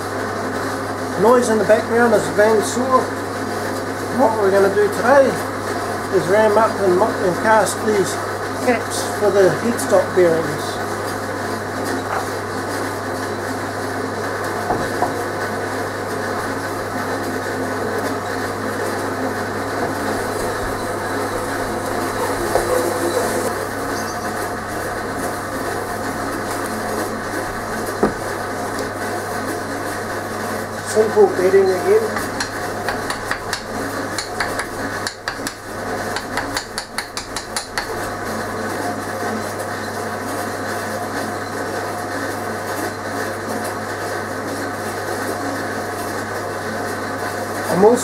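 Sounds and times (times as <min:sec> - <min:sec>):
steady background hum: 0:00.0 - 0:48.0
bandsaw humming: 0:16.2 - 0:38.5
wooden rammer knocks: 0:28.0 - 0:28.3
tool tapping on sand mould: 0:32.2 - 0:35.6, 0:36.2 - 0:38.0.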